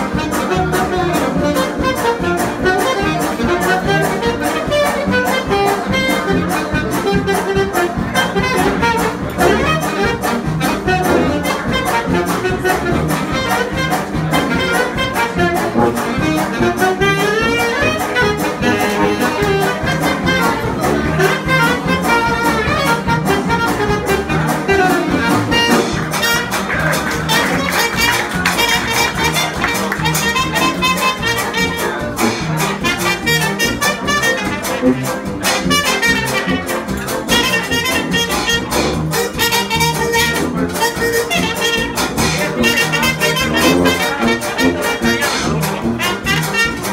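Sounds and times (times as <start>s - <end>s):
rhythm section beat: 0.0s - 46.9s
saxophones and brass: 0.0s - 46.9s.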